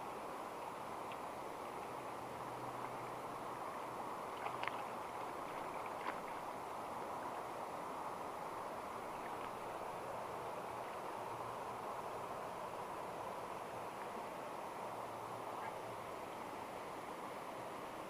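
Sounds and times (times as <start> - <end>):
river current rushing: 0.0 - 18.0
water splashes: 0.6 - 12.2.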